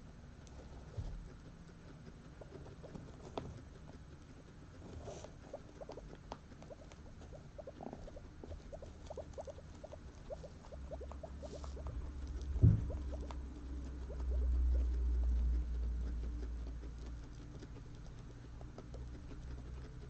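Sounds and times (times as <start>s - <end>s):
guinea pigs squeaking: 0.0s - 20.0s
light knock: 12.4s - 13.2s.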